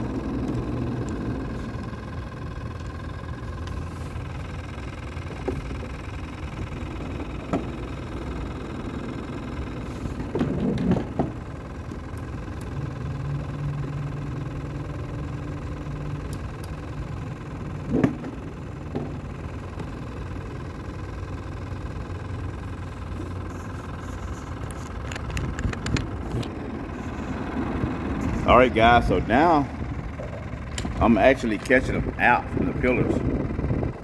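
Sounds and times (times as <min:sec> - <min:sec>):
deeper hum: 0:00.0 - 0:34.0
trolling motor whine and hum: 0:00.0 - 0:34.0
sharp knocks against boat: 0:17.9 - 0:19.2.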